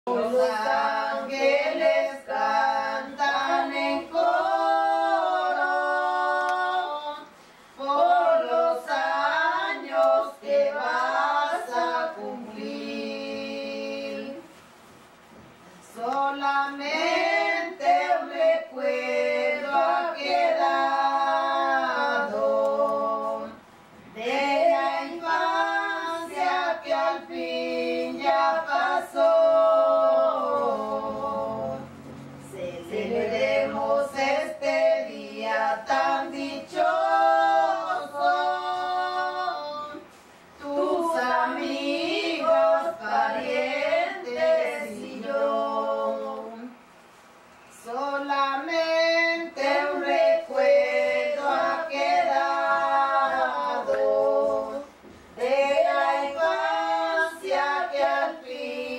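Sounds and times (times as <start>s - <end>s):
women singing unaccompanied: 0.0s - 14.6s, 15.8s - 46.9s, 47.7s - 58.9s.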